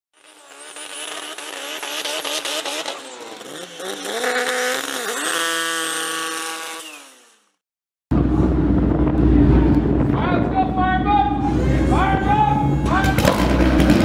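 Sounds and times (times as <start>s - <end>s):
racing car engine at high revs: 0.2s - 7.6s, 12.6s - 14.0s
loud low rumble: 8.1s - 14.0s.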